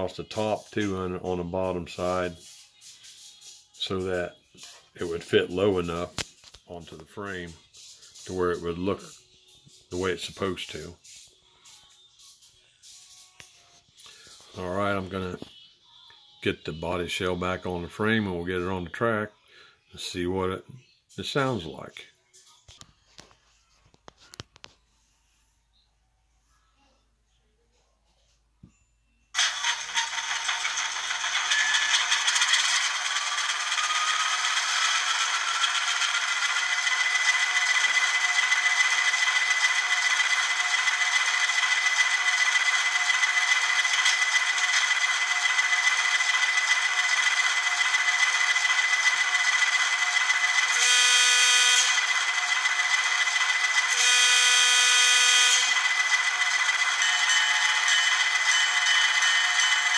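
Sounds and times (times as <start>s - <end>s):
model diesel engine sound: 29.4s - 59.9s
locomotive horn blasts: 50.7s - 52.3s, 53.9s - 56.0s.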